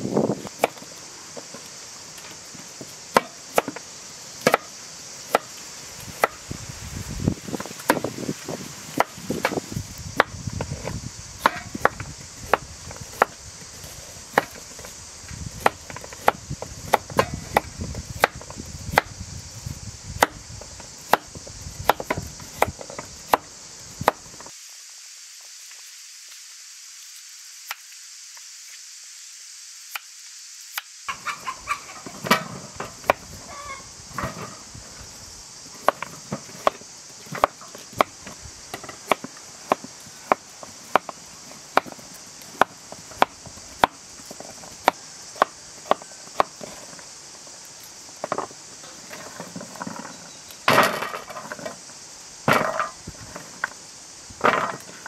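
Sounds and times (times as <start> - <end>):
steady high hiss: 0.0 - 55.0.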